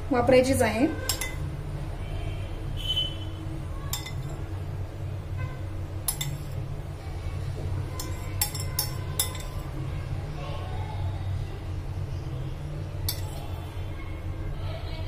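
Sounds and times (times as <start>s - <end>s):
low background hum: 0.0s - 15.0s
metal spoon clinking against glass bowl: 1.1s - 1.4s, 3.9s - 4.4s, 6.1s - 6.6s, 8.0s - 9.6s, 13.1s - 13.4s.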